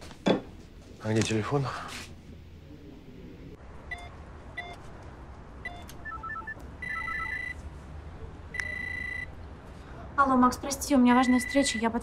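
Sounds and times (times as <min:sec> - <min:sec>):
keypad beeps: 0:05.6 - 0:07.6
long steady intercom beep: 0:05.7 - 0:07.6, 0:08.6 - 0:09.4, 0:11.2 - 0:12.0
intercom tones: 0:11.2 - 0:12.0.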